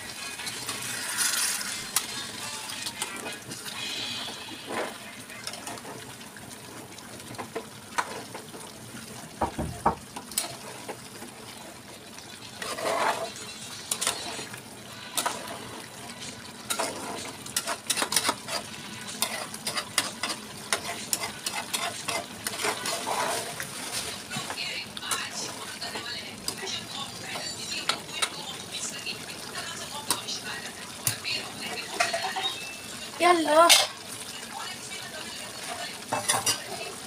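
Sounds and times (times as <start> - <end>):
curry sizzling: 0.0 - 37.0
spoon scraping metal pot: 0.3 - 5.9, 12.6 - 14.6, 15.2 - 24.0, 31.8 - 32.8, 36.1 - 36.9.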